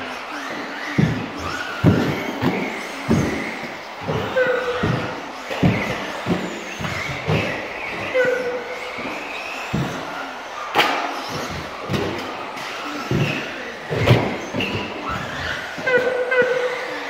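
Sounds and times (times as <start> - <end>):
rc cars landing knocks and thuds: 0.3 - 17.0.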